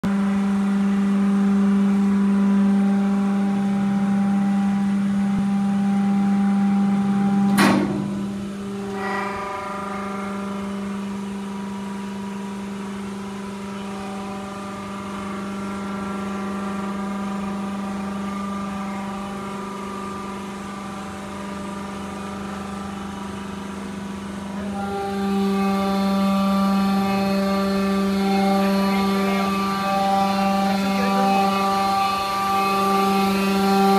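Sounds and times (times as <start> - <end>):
hydraulic press motor humming: 0.1 - 33.9.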